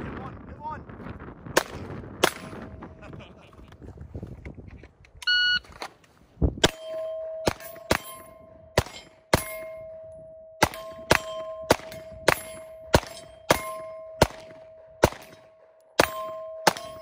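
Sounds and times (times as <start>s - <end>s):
pistol shots: 1.6s - 2.6s, 6.6s - 10.0s, 10.6s - 17.0s
steel targets ringing: 6.6s - 17.0s.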